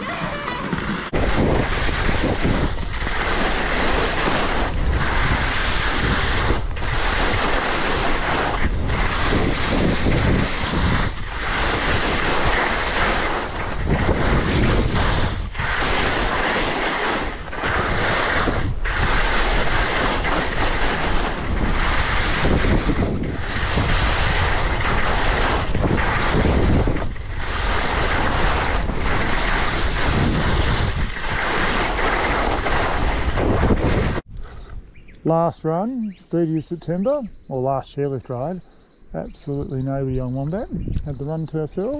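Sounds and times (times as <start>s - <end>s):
skis scraping over snow: 0.0s - 34.2s
wind rushing over microphone: 0.0s - 36.5s, 39.2s - 41.9s.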